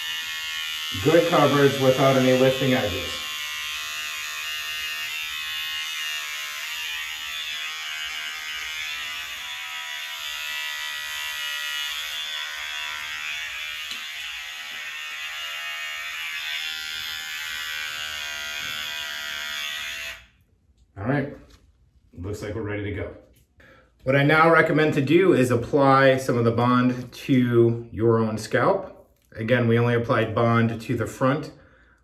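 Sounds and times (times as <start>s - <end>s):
hair trimmer buzzing: 0.0s - 20.4s.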